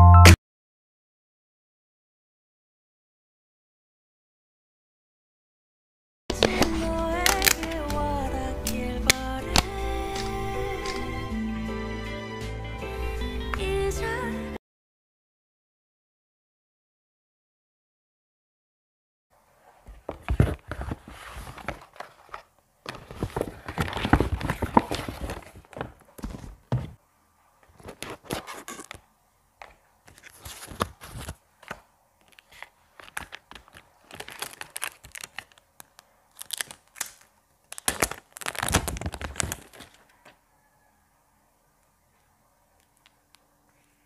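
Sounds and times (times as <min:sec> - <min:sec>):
paper bag and cardboard rustling: 0:06.3 - 0:07.9, 0:19.6 - 0:27.0, 0:30.1 - 0:40.2
wrapping crinkling and tearing: 0:06.3 - 0:08.0, 0:20.3 - 0:26.2, 0:32.2 - 0:40.1.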